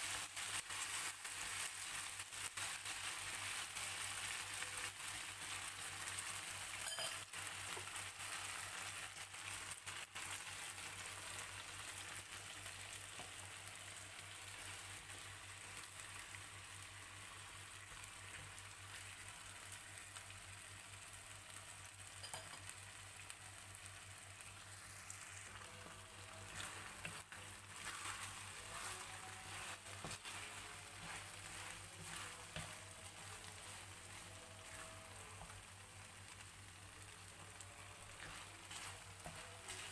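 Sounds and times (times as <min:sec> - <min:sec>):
food sizzling in frying pan: 0:00.0 - 0:39.9
wooden spatula scraping pan: 0:25.8 - 0:35.5, 0:38.0 - 0:39.9.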